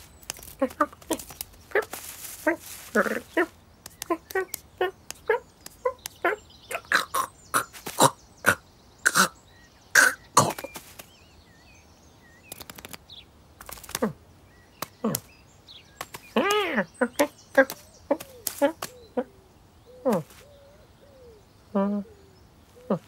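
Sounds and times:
person making cat grunts and chirps: 0:06.2 - 0:10.8.

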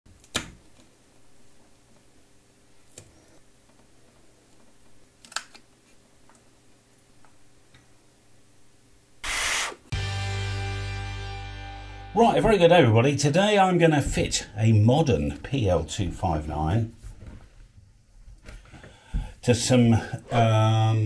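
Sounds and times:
loud hiss: 0:09.2 - 0:09.9.

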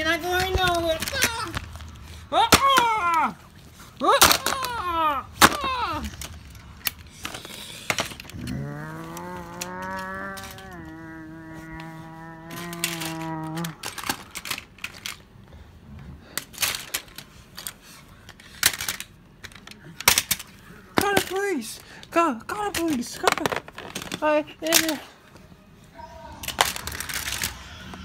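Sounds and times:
plastic toys clicking: 0:00.0 - 0:15.3, 0:16.3 - 0:25.1, 0:26.4 - 0:28.0
person humming low drone: 0:08.3 - 0:13.9.

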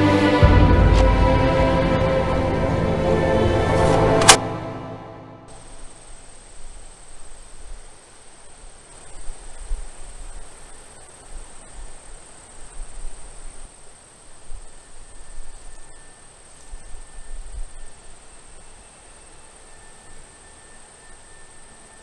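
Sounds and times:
low rumbles: 0:00.1 - 0:04.6
insects trilling: 0:05.5 - 0:22.0.

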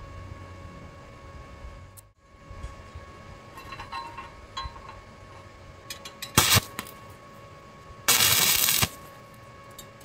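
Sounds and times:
welding arc crackling: 0:06.3 - 0:07.0, 0:08.1 - 0:09.1.

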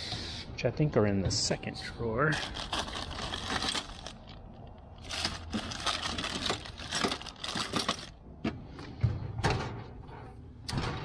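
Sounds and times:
tools clattering in drawer: 0:02.4 - 0:04.3, 0:05.0 - 0:08.1.

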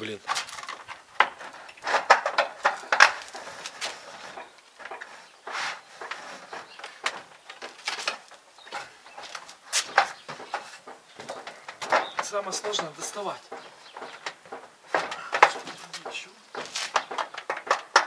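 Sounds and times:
short scrape: 0:05.2 - 0:06.4
metal strip knocks and clicks: 0:06.8 - 0:18.0.

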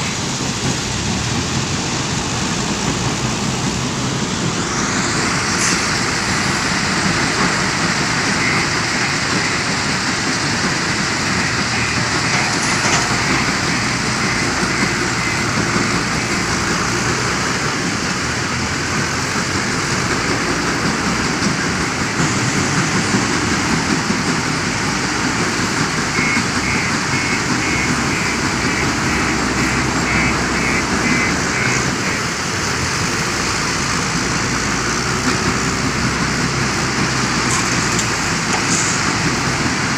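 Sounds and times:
diesel engine working: 0:00.0 - 0:39.9
stone crusher machinery: 0:19.8 - 0:39.9.

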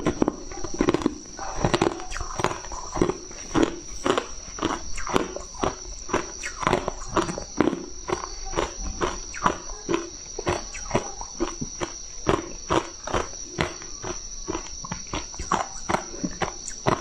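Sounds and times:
high-pitched whine: 0:01.3 - 0:11.7.

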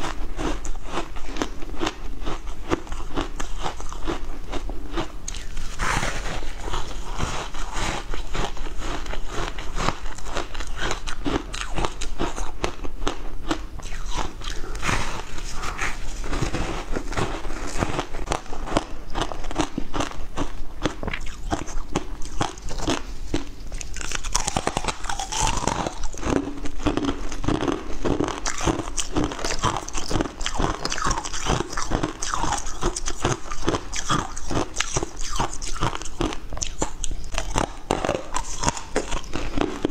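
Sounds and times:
crunching frozen ice: 0:13.5 - 0:39.9.

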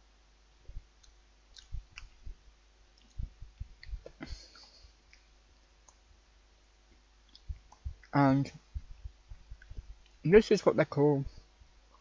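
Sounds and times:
clicks and soft thumps: 0:00.6 - 0:02.4, 0:03.0 - 0:06.1, 0:06.9 - 0:10.2.

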